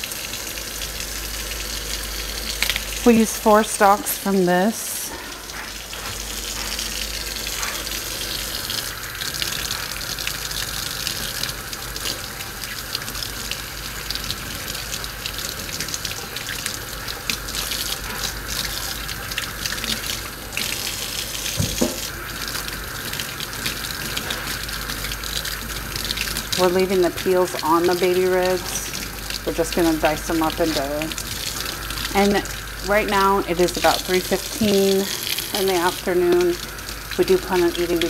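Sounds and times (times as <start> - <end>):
faucet running into a sink: 0.0 - 38.0
potatoes scrubbed by hand: 25.7 - 38.0.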